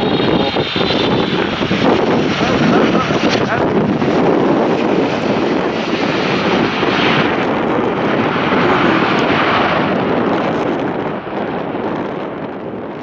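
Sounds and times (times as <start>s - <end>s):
airliner jet engine landing: 0.0s - 13.0s.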